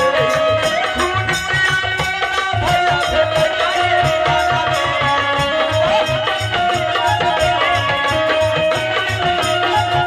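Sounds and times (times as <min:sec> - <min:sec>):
hand drum beat: 0:00.0 - 0:10.0
harmonium melody: 0:00.0 - 0:10.0.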